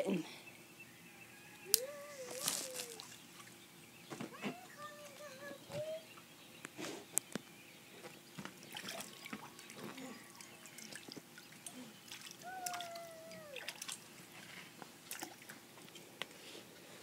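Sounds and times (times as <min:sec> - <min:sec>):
water trickling and dripping: 0:08.3 - 0:14.1.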